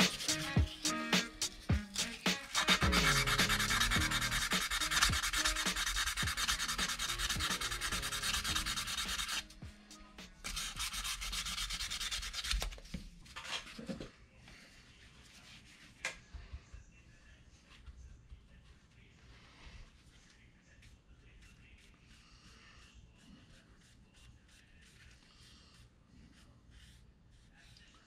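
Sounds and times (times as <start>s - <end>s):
sandpaper strokes: 0.0s - 9.5s, 10.5s - 12.6s.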